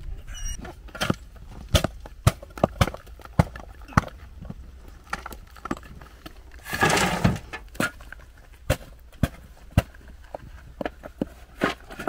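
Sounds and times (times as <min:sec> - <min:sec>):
shovel scraping loose stone: 0:06.6 - 0:08.0.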